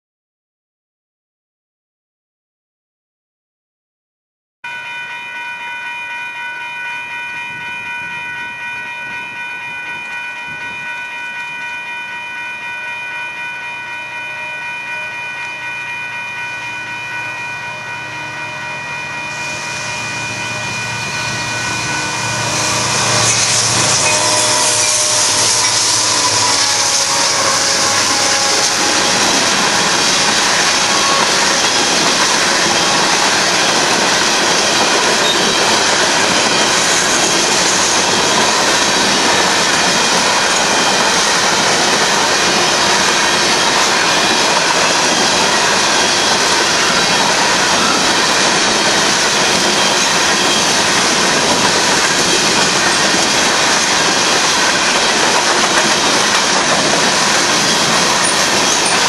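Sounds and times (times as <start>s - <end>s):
crossing warning bell ringing: 4.6s - 59.0s
locomotive drone: 13.3s - 59.0s
train wheels clattering on rails: 22.3s - 59.0s.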